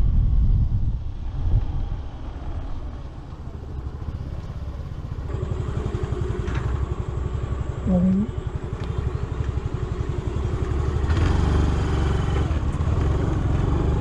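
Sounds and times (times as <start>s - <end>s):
wind rush: 0.0s - 3.6s
scooter engine running: 1.9s - 14.0s.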